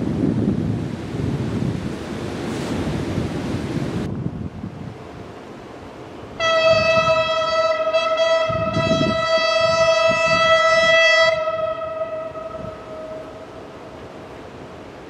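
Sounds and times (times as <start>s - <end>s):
wind noise: 0.0s - 5.4s, 6.4s - 14.1s
locomotive horn blast: 6.4s - 13.7s.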